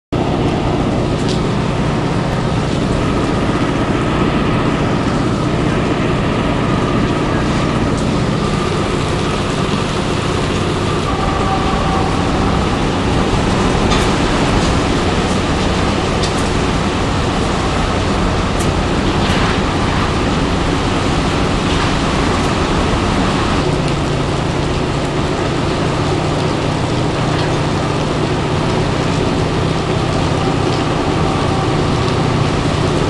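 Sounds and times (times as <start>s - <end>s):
heavy driving rain: 0.1s - 33.0s
loud rushing wind: 0.1s - 33.0s.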